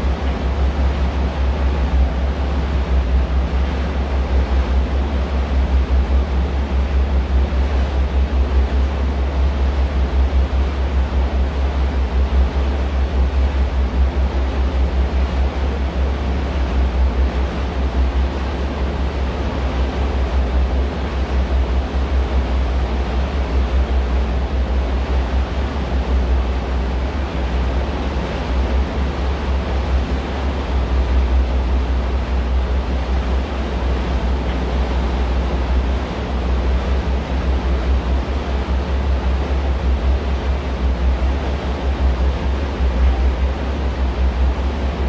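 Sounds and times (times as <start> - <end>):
boat engine rumble: 0.0 - 45.0
water rushing: 0.0 - 45.0.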